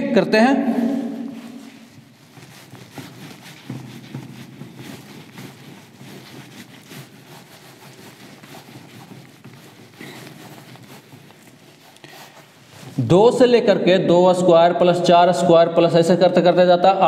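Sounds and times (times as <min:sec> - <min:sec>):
duster rubbing on whiteboard: 0:00.8 - 0:13.1.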